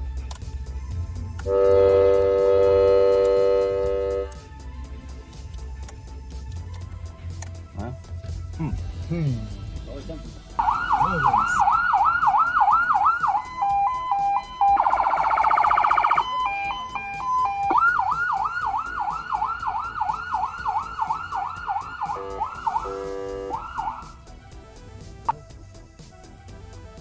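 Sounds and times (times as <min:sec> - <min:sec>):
buzzing horn tone: 0:01.4 - 0:04.4, 0:22.0 - 0:23.8
police siren yelping: 0:10.6 - 0:24.3.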